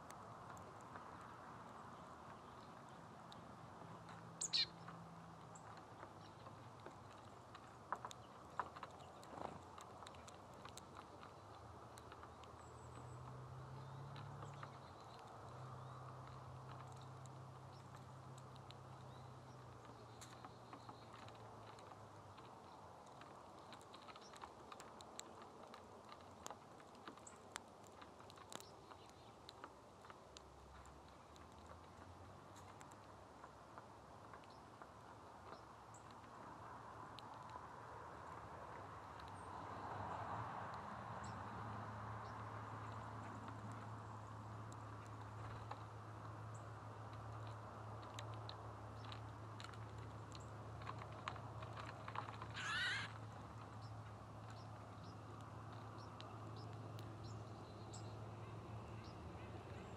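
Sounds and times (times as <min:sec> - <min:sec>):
bird cracking seeds: 0:04.0 - 0:35.0, 0:44.6 - 0:57.2
buzzy bird call: 0:04.4 - 0:04.7, 0:52.6 - 0:53.1.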